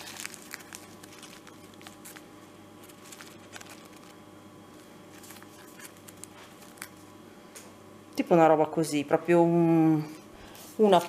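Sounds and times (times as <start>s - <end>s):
teaspoon rustling in paper packet: 0.0s - 4.2s, 4.8s - 7.0s
steady low hum: 0.0s - 11.0s.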